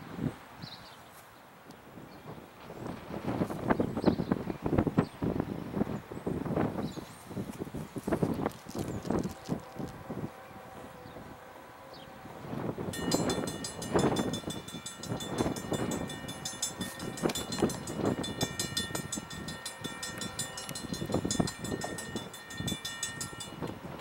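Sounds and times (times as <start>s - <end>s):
crossing warning bell ringing: 12.6s - 24.0s
train clattering on track: 12.8s - 24.0s.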